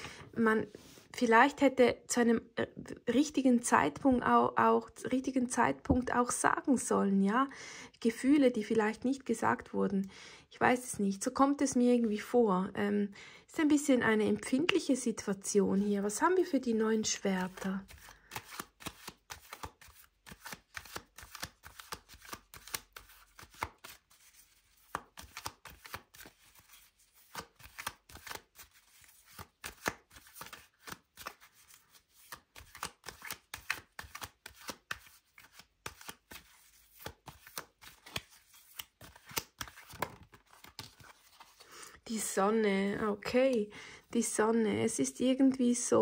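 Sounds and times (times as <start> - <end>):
cards being shuffled: 17.0 - 42.0.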